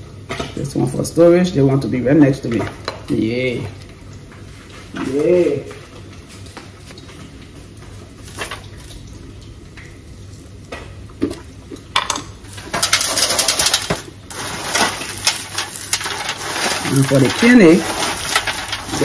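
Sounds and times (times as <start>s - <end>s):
foil crinkling: 12.5s - 19.0s
peanuts rattling on a tray: 12.6s - 19.0s.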